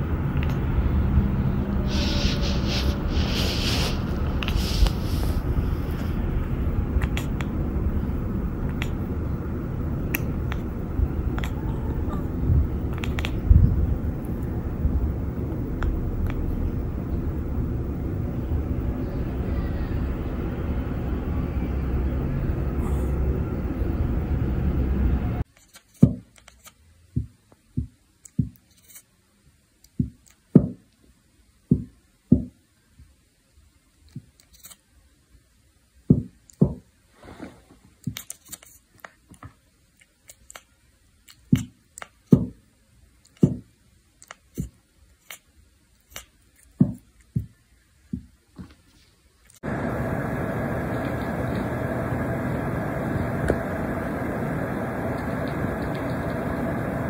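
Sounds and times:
steady rumbling noise: 0.0s - 25.5s, 49.6s - 57.0s
cat chattering jaw clicks: 12.9s - 13.4s.

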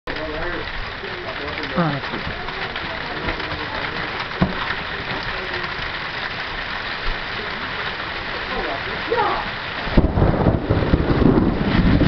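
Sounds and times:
rain on trees and porch: 0.0s - 12.0s
low rumble: 9.5s - 12.0s.

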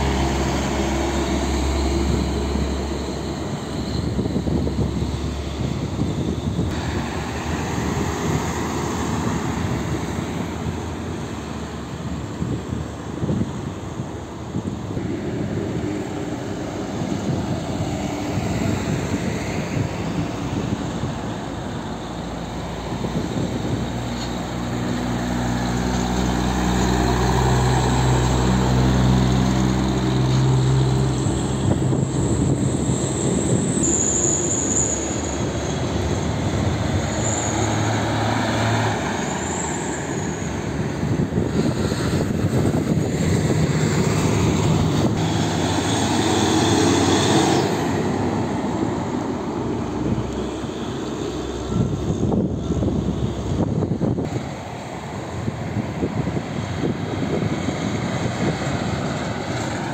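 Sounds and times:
truck engine drone passing: 0.0s - 59.9s
tyre and traffic noise: 0.0s - 59.9s
faint high whistle: 33.6s - 35.5s.

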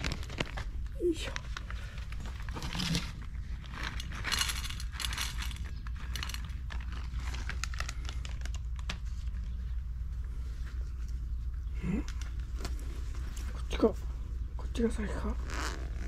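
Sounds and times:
rustling and crinkling: 0.0s - 16.0s
steady low hum: 0.0s - 16.0s.

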